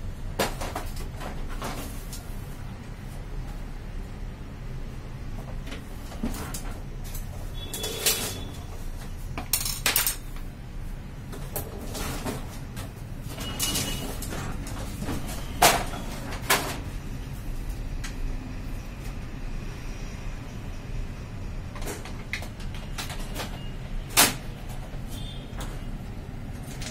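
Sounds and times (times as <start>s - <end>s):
copier covers clicking and knocking: 21.8s - 25.0s.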